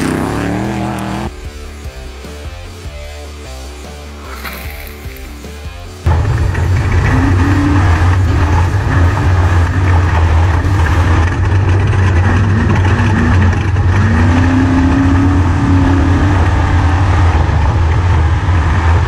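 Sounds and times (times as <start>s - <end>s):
road and wind noise: 0.0s - 1.4s, 4.1s - 19.0s
truck engine revving hard: 0.0s - 1.4s, 6.1s - 19.0s.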